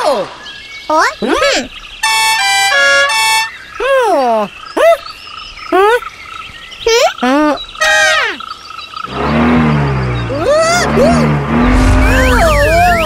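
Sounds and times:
high-pitched cartoon gibberish voices: 5.7 - 6.1, 6.8 - 8.4, 10.3 - 13.0.

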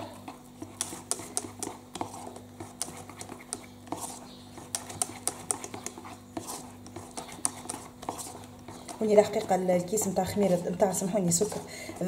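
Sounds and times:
low steady hum: 0.0 - 12.0
whisk tapping in saucepan: 0.6 - 3.6, 4.6 - 10.2.

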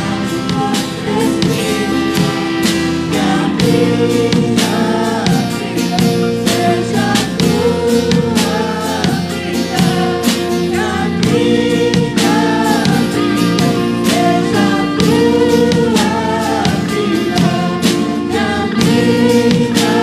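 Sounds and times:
acoustic and electric guitars: 0.0 - 20.0
keyboard: 0.0 - 20.0
steady drum beat: 0.0 - 20.0
woman singing lead: 0.0 - 20.0.

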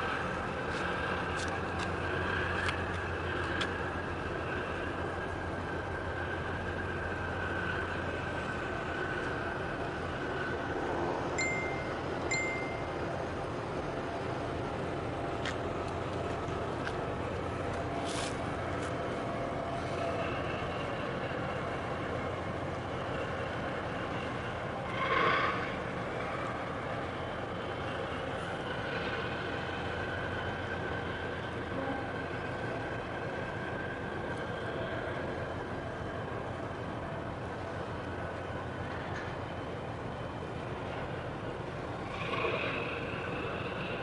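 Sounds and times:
distant engines rumbling: 0.0 - 44.0
faint held tones: 11.4 - 13.0.

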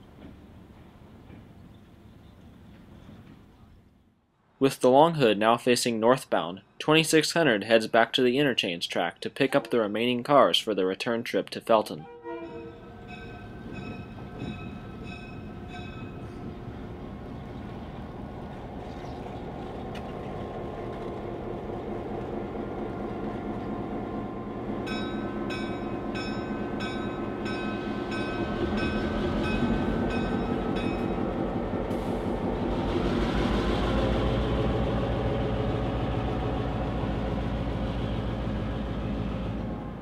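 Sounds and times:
locomotive bell ringing: 12.0 - 16.6, 24.8 - 31.4
locomotive engine rumble: 12.0 - 40.0.

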